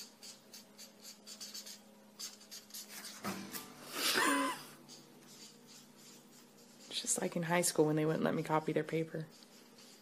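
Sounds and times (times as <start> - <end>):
pen scratching on paper: 0.0 - 3.3, 4.9 - 7.6, 9.3 - 10.0.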